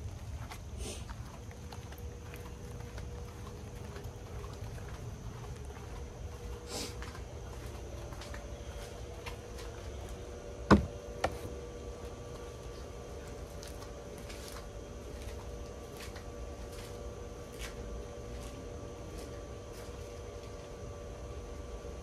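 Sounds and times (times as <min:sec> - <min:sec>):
shoe stomping on foam: 0:10.7 - 0:11.4.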